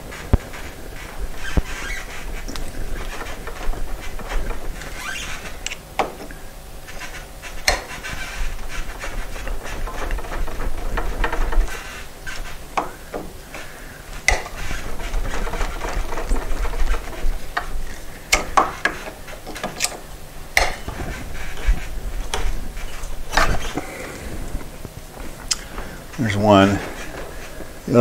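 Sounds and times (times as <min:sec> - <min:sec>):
wood creaking: 0:00.0 - 0:28.0
pliers scraping: 0:06.9 - 0:10.5, 0:13.6 - 0:23.9
metal-on-metal clicks: 0:07.0 - 0:11.8, 0:14.2 - 0:21.7.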